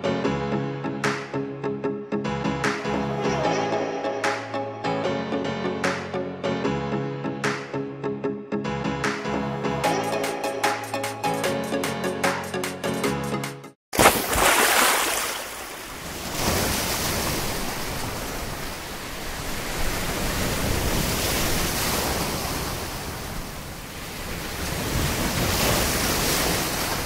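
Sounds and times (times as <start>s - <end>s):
sea waves breaking: 14.0s - 27.0s.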